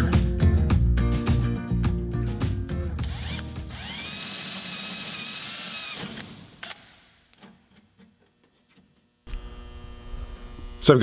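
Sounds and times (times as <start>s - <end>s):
drill whining: 3.0s - 7.0s.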